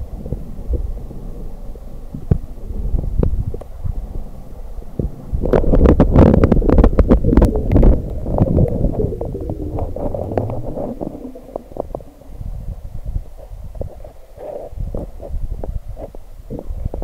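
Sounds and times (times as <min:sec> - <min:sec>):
underwater rumbling wash of water: 0:00.0 - 0:13.4.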